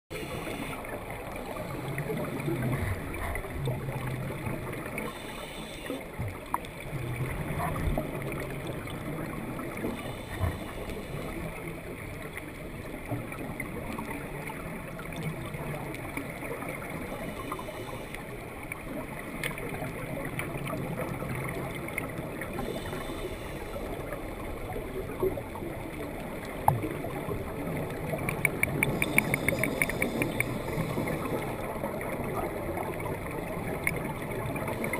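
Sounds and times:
scuba regulator breathing: 0.1s - 0.9s, 5.1s - 6.1s, 10.0s - 11.4s, 22.6s - 24.1s, 28.8s - 31.6s
exhaled bubbles underwater: 0.1s - 34.9s.

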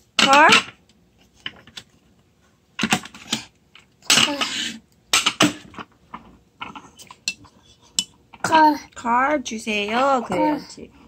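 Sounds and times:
toddler vocal sounds: 4.1s - 4.8s, 8.4s - 9.0s, 9.9s - 10.8s.

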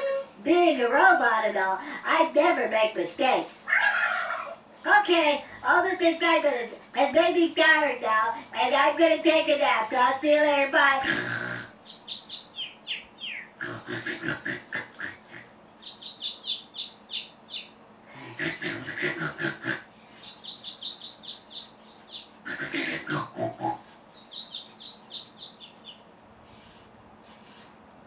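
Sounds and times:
snore-like grunts: 11.0s - 11.7s, 13.6s - 15.5s, 18.1s - 19.9s, 22.5s - 23.8s.

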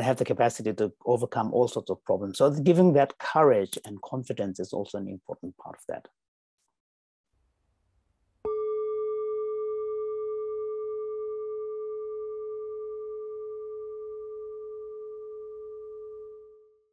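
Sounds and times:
singing bowl ringing: 8.5s - 16.9s.

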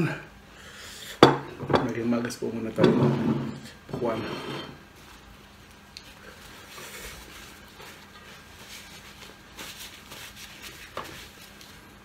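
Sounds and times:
paper napkin rustling: 6.1s - 12.0s.

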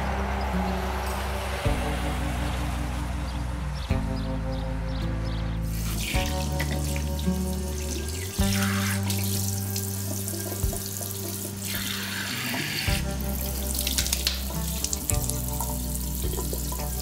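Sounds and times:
music with low sustained notes: 0.0s - 17.0s
tap water running into basin: 5.7s - 17.0s
water splashing onto face: 5.7s - 17.0s.

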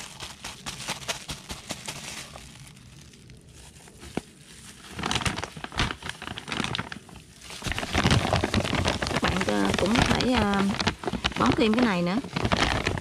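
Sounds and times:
plastic glove and bags crinkling: 0.0s - 13.0s.

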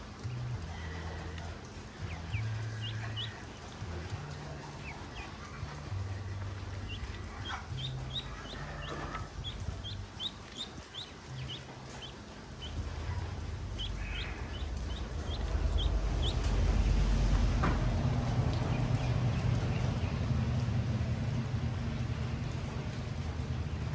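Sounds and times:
low rumble: 0.5s - 23.9s
ducklings peeping: 0.7s - 16.7s, 18.5s - 20.6s.

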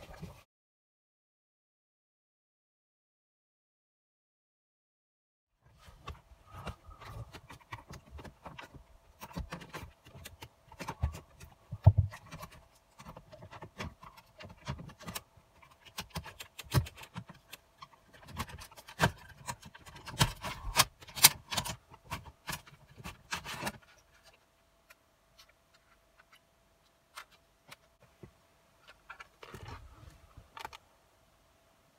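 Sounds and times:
plastic trim clicking and scraping: 6.0s - 24.4s.

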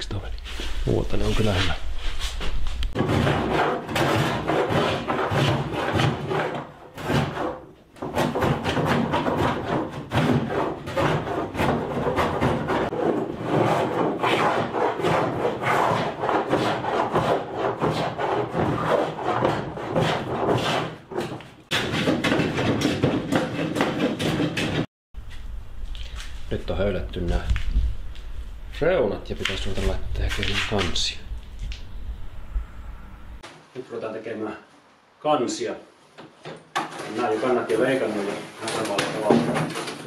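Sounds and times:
hand plane scraping wood: 3.0s - 24.9s.

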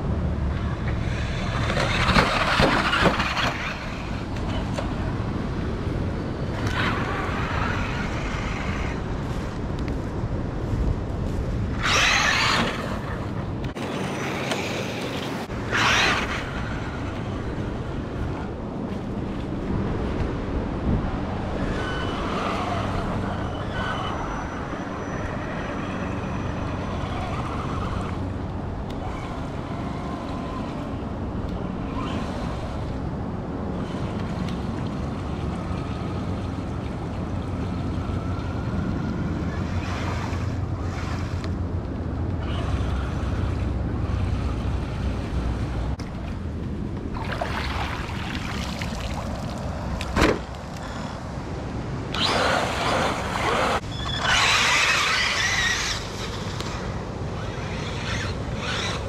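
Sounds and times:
steady rushing noise: 0.0s - 59.0s
electric toy truck motor whine: 11.8s - 13.3s, 15.6s - 17.0s, 52.1s - 59.0s.

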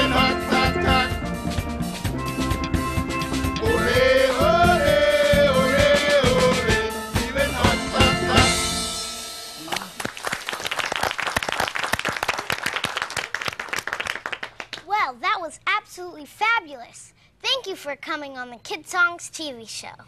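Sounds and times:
people singing: 0.0s - 1.3s, 3.6s - 9.0s
steel drum band: 0.0s - 10.4s
applause: 9.7s - 14.9s.

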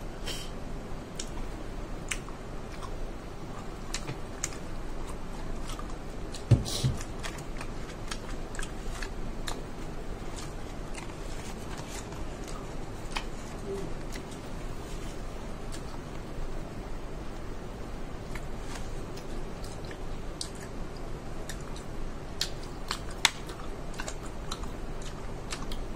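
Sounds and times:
mouth clicks and smacks: 1.1s - 1.4s, 2.0s - 9.7s
person chewing food: 1.1s - 16.3s, 18.2s - 25.9s
thump: 6.5s - 7.0s.

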